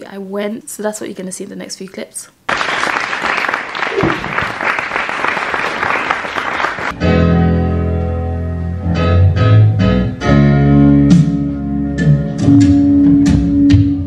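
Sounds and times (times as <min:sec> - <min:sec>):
audience applauding: 0:02.5 - 0:07.0
keyboard sustained chords: 0:06.9 - 0:14.0.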